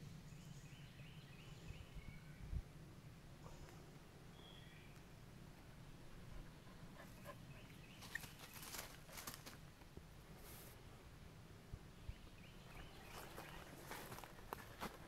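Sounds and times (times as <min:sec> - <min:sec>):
faint rustles and scuffs: 0:07.9 - 0:09.6, 0:10.4 - 0:10.8, 0:12.7 - 0:15.0.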